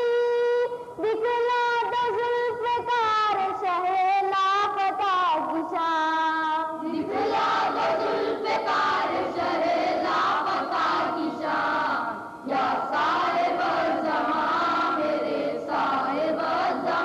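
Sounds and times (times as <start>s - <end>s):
boys singing together: 6.8s - 17.0s.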